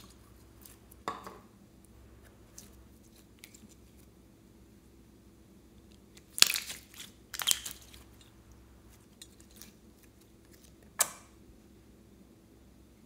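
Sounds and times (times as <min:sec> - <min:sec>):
slime squelching by hand: 0:06.0 - 0:10.9.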